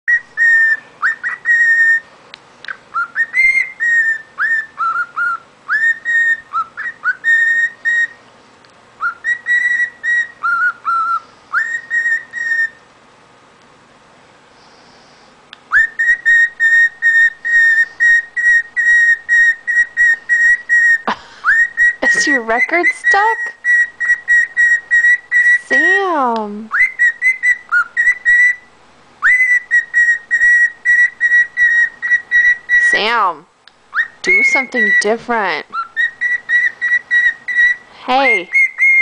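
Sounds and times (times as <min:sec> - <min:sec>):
cockatiel whistling: 0:00.1 - 0:02.1, 0:02.7 - 0:08.2, 0:09.0 - 0:12.8, 0:15.7 - 0:26.0, 0:26.7 - 0:33.3, 0:33.9 - 0:39.0.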